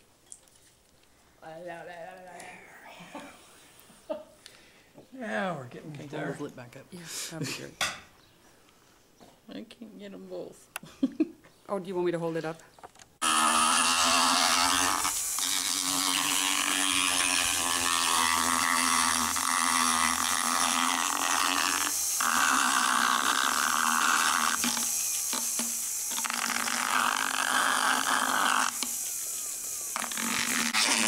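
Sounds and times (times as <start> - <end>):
motorized dental float buzzing: 13.2 - 31.0.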